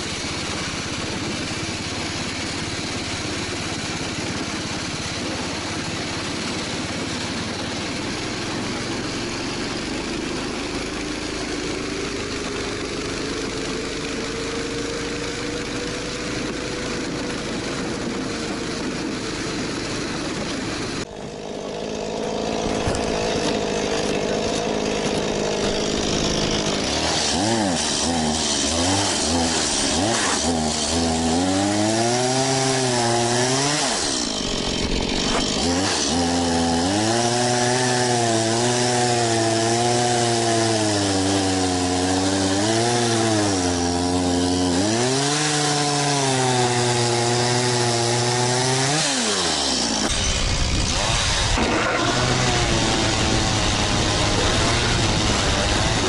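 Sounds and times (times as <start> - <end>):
engine running steadily: 0.0 - 28.8, 33.8 - 36.0, 49.2 - 56.0
chainsaw cutting wood: 0.0 - 56.0.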